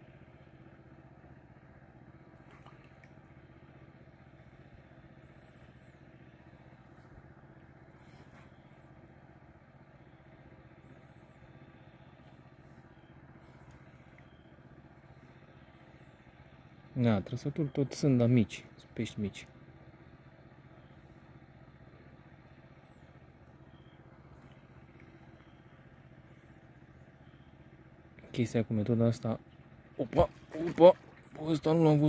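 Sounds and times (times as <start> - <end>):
distant engine drone: 0.0 - 32.0.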